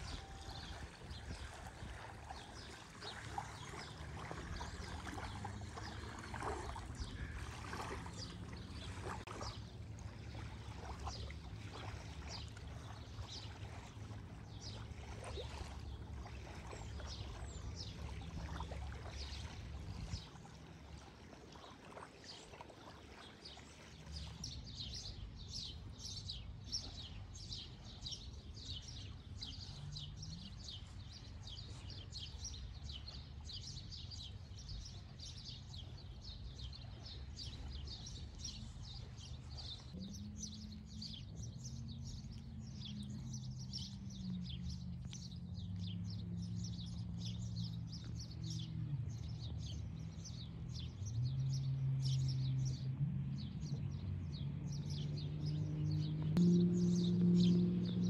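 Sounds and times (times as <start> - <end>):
low droning hum: 0.0 - 23.0, 35.9 - 58.0
small birds chirping: 54.3 - 58.0.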